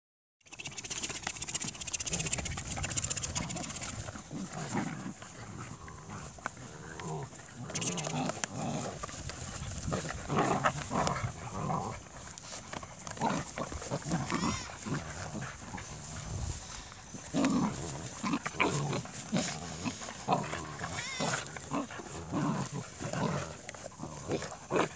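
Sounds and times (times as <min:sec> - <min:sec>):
puppies yipping whining and growling: 0:13.8 - 0:14.9, 0:19.9 - 0:22.1.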